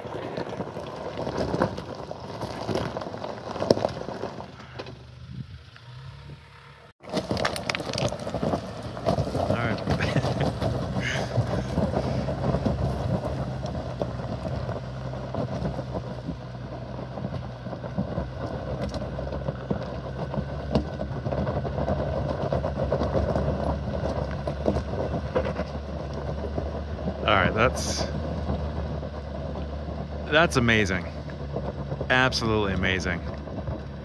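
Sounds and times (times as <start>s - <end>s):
tyres crunching on rock: 0.0s - 4.8s, 7.0s - 34.0s
pickup engine running at low revs: 0.0s - 34.0s.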